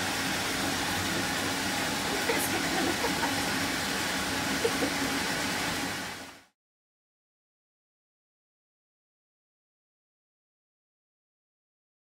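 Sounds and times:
tap water running into bathtub: 0.0 - 6.4.

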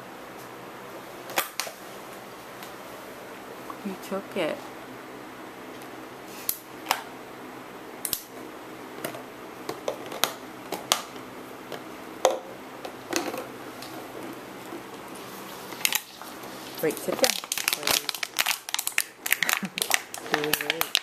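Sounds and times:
dog chewing plastic bottle: 17.0 - 21.0.

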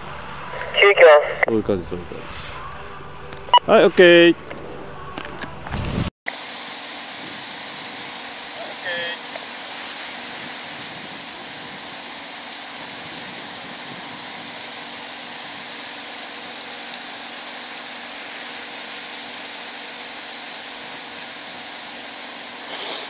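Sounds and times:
wind rushing: 10.0 - 15.7.

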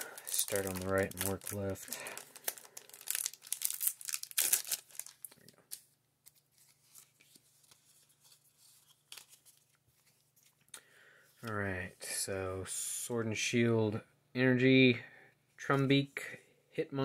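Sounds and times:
foil wrapper crinkling: 0.0 - 9.8.

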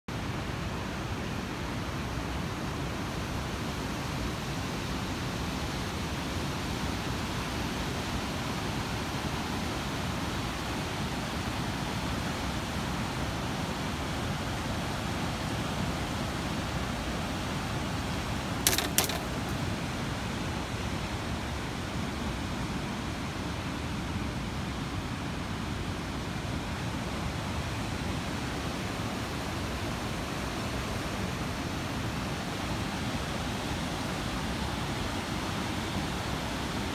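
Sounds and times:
sharp clicks: 18.7 - 19.6.

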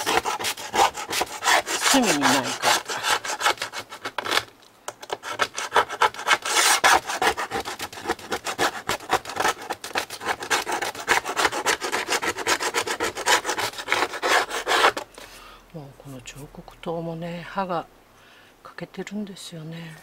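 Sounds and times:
chisel scraping metal strip: 0.0 - 15.1.

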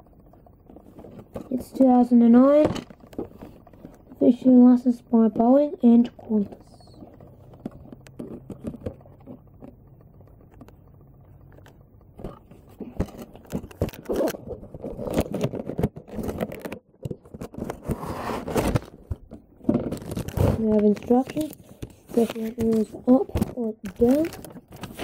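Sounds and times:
plastic packaging rustling: 12.2 - 25.0
cardboard box being opened: 17.4 - 19.0.

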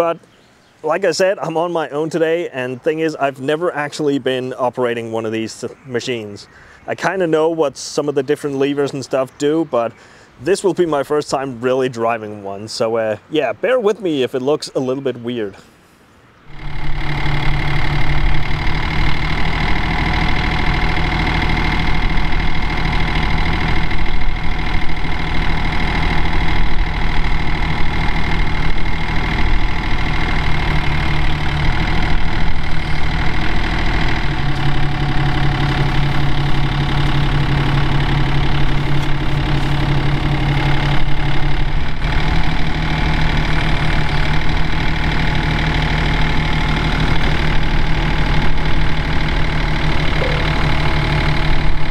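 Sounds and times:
diesel engine running: 16.5 - 51.9
high whine: 16.5 - 51.9.

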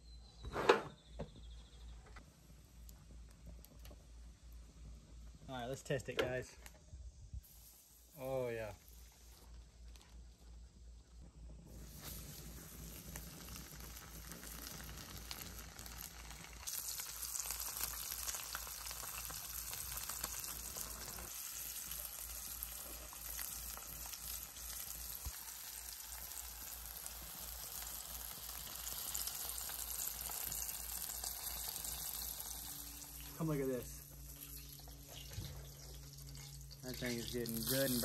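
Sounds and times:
fish frying in hot oil: 11.7 - 33.3, 34.2 - 38.0.

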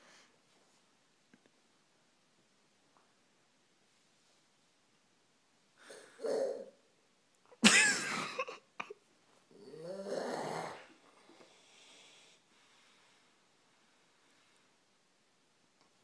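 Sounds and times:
man snoring: 9.6 - 10.9.

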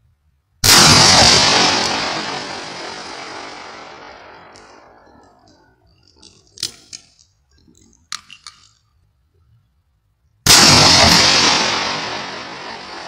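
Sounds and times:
loud shotgun blast: 0.6 - 4.9, 10.4 - 13.0.

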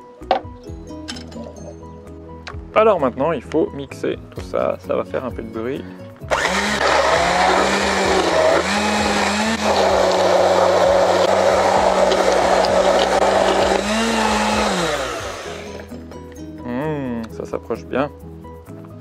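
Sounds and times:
stick blender motor humming: 6.3 - 15.9.

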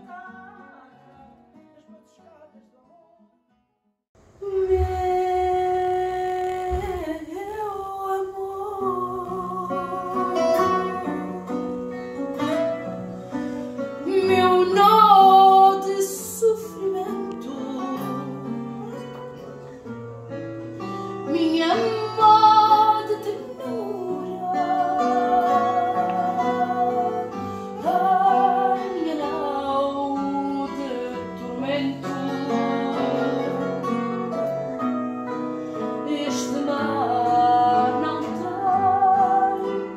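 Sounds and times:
plucked classical guitar: 0.0 - 3.7, 4.5 - 39.9
woman singing: 4.4 - 12.8, 13.8 - 19.4, 21.2 - 39.9.

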